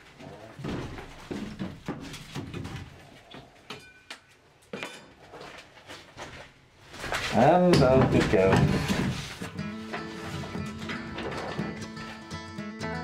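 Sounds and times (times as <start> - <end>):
wooden panelling knocking and scraping: 0.5 - 3.2, 6.9 - 12.2.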